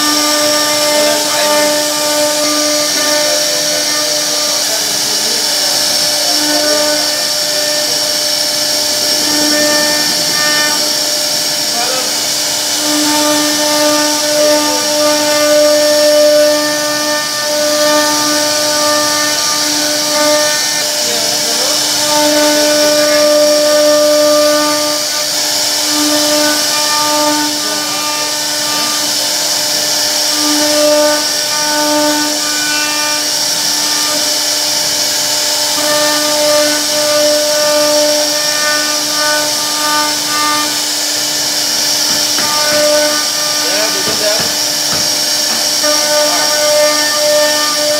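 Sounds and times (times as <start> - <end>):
hiss of cutting wood: 0.0 - 47.9
router spindle high whine: 0.0 - 47.9.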